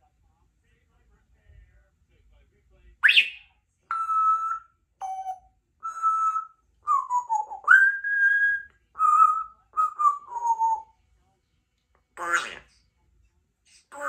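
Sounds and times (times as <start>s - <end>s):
parrot whistling: 3.0s - 10.9s.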